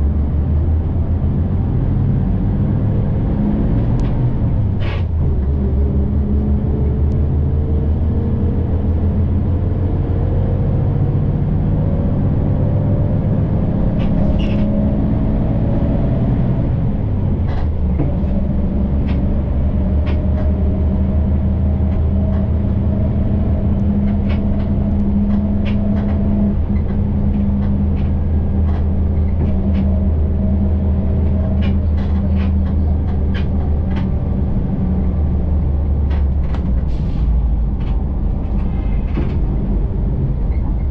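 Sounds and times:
bus engine and road rumble: 0.0 - 40.9
light rattles and clicks: 17.0 - 40.9.

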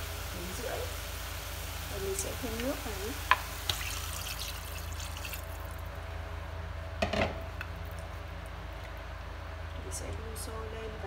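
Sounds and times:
steady low hum: 0.0 - 11.0
water pouring into metal pot: 3.7 - 5.9.

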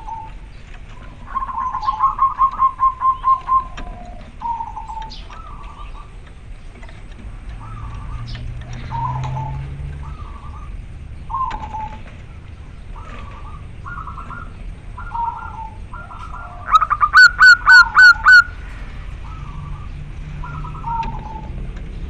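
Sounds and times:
dove cooing: 0.0 - 6.2, 7.0 - 21.7
sharp clipped bird notes: 16.1 - 18.6.

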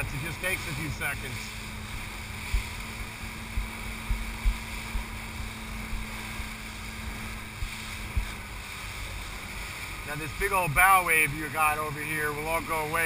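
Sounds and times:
wind on microphone: 0.0 - 10.1
boat engine hum: 0.0 - 13.0
water rushing along hull: 0.0 - 13.0
low thumps: 2.0 - 6.4.

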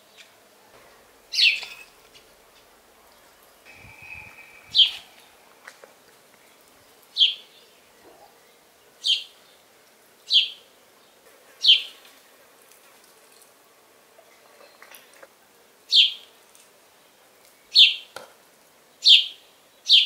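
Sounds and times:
bird chirping: 1.3 - 2.0, 3.1 - 9.6.

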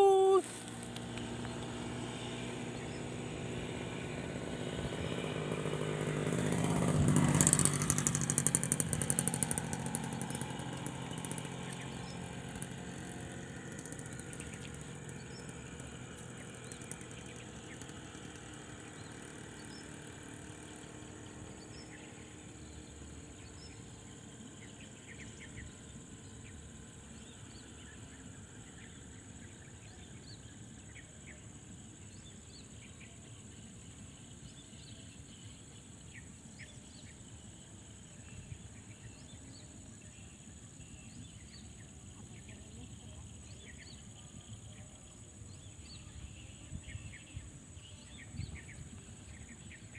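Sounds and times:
insect chirps: 0.0 - 49.9.

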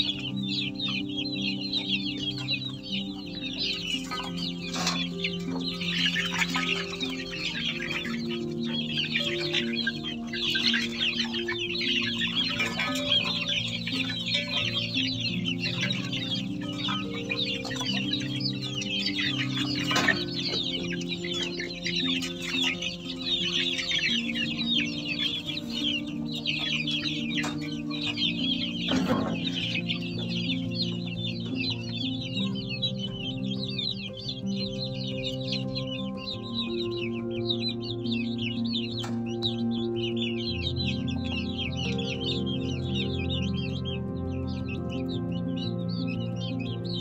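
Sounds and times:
chicks peeping: 0.0 - 47.0
slow melody background music: 0.0 - 47.0.

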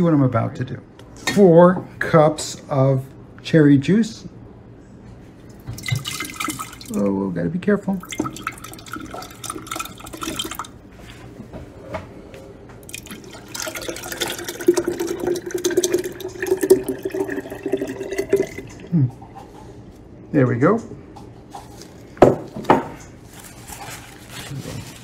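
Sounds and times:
juice pouring and splashing: 5.5 - 7.1, 8.0 - 10.8, 12.8 - 19.0.

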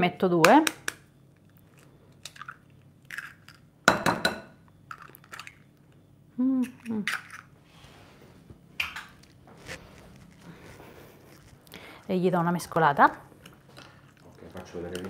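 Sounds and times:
egg cracking on bowl rim: 2.2 - 5.6
woman humming: 6.3 - 7.1.

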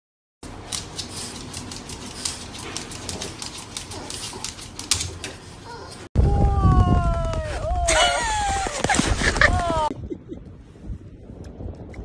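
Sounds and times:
dog claws clicking on wood: 0.6 - 5.5.

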